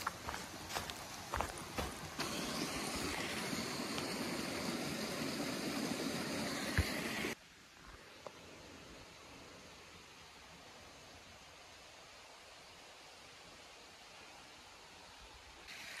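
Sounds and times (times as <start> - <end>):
footsteps on trail: 0.0 - 4.2
stream rushing: 0.0 - 7.4
faint hiss: 0.0 - 16.0.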